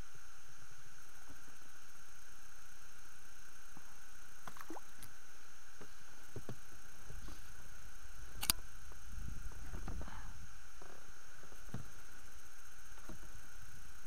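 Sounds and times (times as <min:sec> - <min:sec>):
camera hiss and hum: 0:00.0 - 0:14.0
sharp click: 0:08.4 - 0:08.6.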